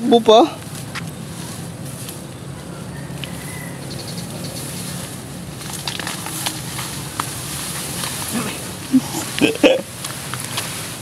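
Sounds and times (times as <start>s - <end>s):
tall grass rustling: 0.1s - 11.0s
sharp crackles and snaps: 5.0s - 8.3s, 9.4s - 11.0s.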